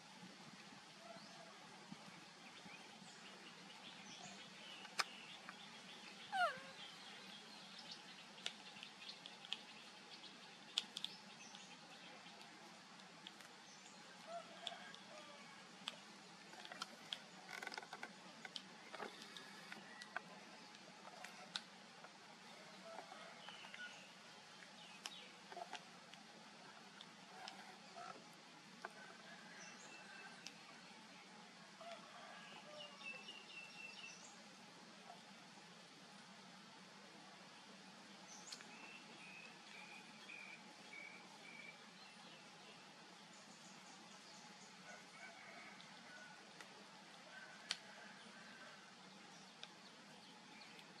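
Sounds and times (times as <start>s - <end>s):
small clicks: 10.7s - 11.6s.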